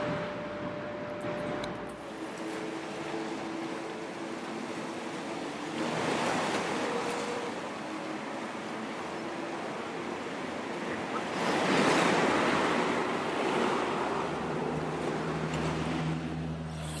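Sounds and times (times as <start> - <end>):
low steady hum: 0.0 - 5.5
sea waves washing on shore: 0.0 - 17.0.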